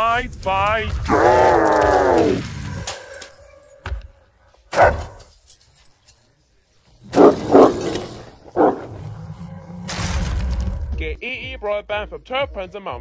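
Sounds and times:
dog barking: 4.7s - 5.2s, 7.1s - 8.0s.

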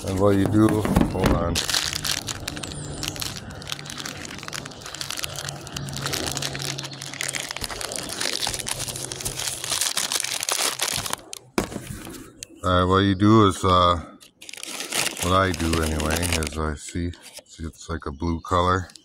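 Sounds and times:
plastic bag crinkling: 0.0s - 11.6s, 14.2s - 16.6s.

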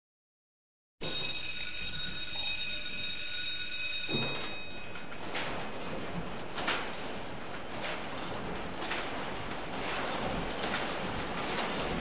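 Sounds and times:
school bell ringing: 1.0s - 5.3s.

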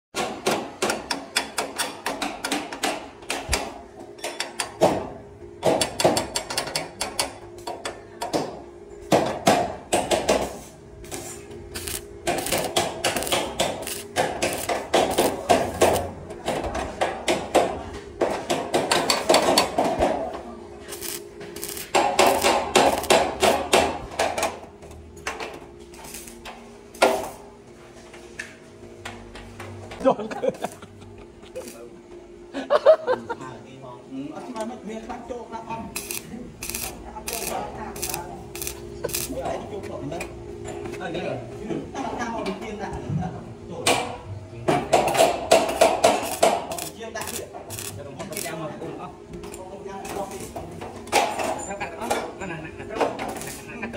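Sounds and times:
stick welder crackling: 11.0s - 16.2s, 20.9s - 24.1s, 25.9s - 26.4s, 31.5s - 31.9s, 35.9s - 39.4s, 45.5s - 48.6s, 53.3s - 53.8s.

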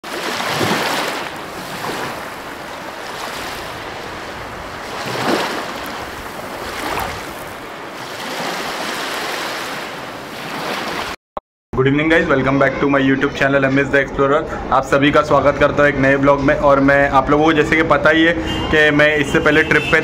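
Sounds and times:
waves breaking on a beach: 0.0s - 11.2s.

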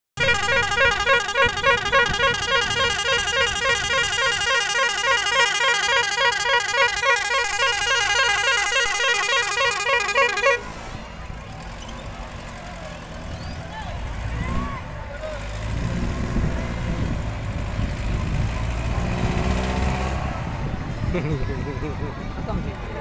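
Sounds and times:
bus horn blasts: 0.2s - 11.0s.

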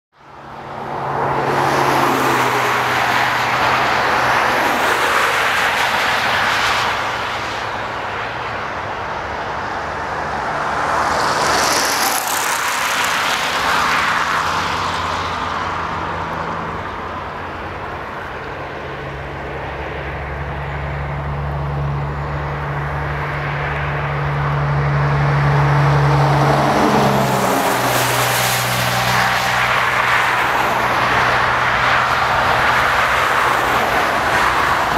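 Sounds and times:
diesel locomotive drone: 13.2s - 34.9s.

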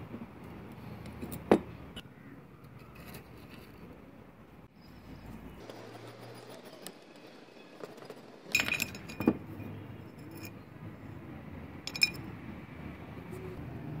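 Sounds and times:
metal wheel clinking on rod: 6.3s - 10.7s, 11.9s - 12.3s.

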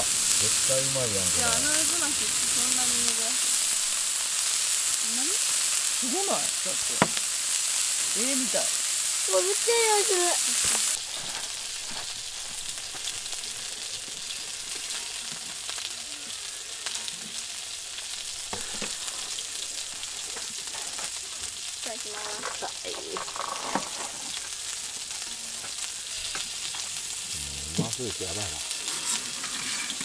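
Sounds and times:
meat sizzling on grill plate: 0.0s - 30.0s.

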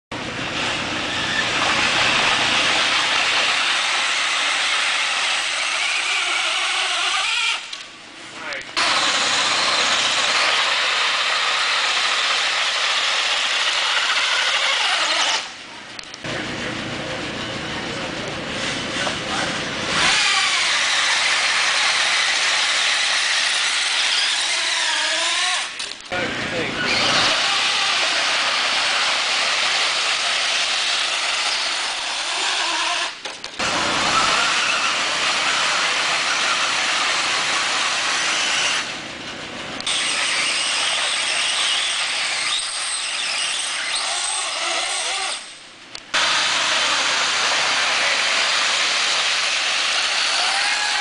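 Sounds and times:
toy truck motor whirring: 3.5s - 7.8s, 8.8s - 15.6s, 19.9s - 26.0s, 26.9s - 33.2s, 39.8s - 45.5s
rc truck hissing whir: 8.8s - 15.5s, 46.2s - 51.0s.

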